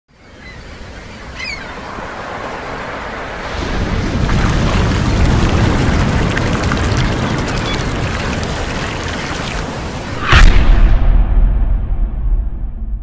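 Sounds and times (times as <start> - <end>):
wind: 0.1 - 13.0
ocean waves: 0.3 - 10.4.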